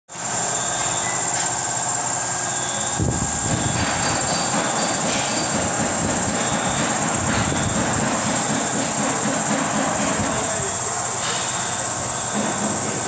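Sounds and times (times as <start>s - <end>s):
loud mechanical noise: 0.1s - 13.0s
faint high squeals: 0.2s - 5.6s.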